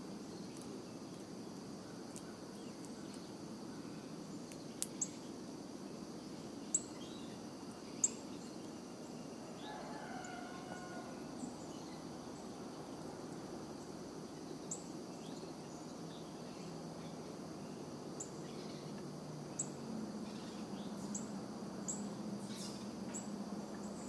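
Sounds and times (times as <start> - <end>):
insect drone: 0.0 - 24.0
distant rooster crow: 9.5 - 11.4.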